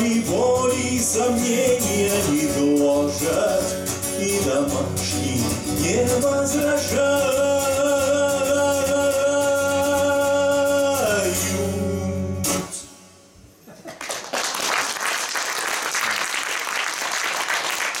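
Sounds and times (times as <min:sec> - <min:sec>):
man singing: 0:00.0 - 0:13.0
acoustic guitar: 0:00.0 - 0:13.8
audience applause: 0:13.8 - 0:18.0.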